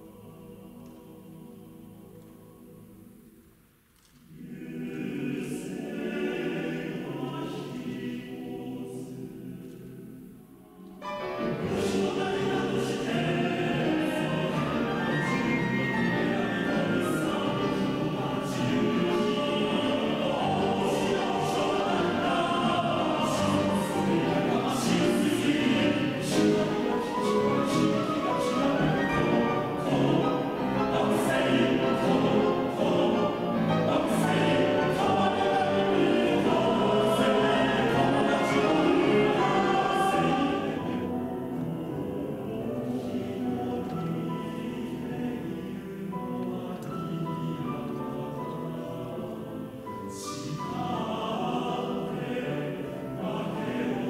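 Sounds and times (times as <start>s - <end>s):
choir singing: 0.0s - 54.0s
piano accompaniment: 11.0s - 54.0s.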